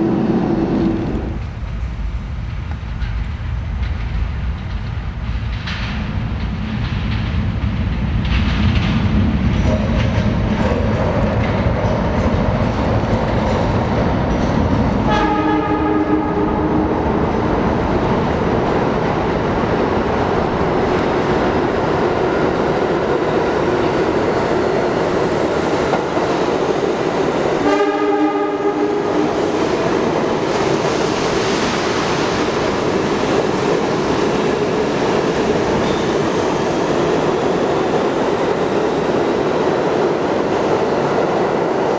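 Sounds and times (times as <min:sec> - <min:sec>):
subway train rumbling on rails: 0:00.0 - 0:41.9
train air horn: 0:15.1 - 0:16.7, 0:27.6 - 0:29.4.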